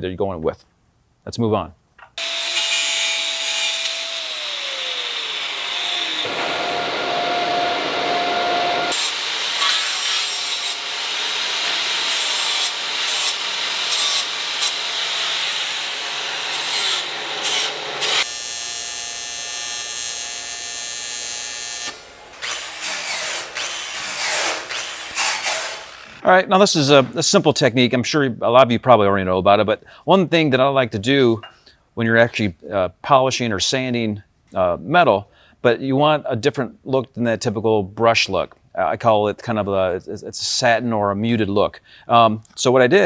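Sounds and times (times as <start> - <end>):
angle grinder cutting metal: 2.2 - 26.2.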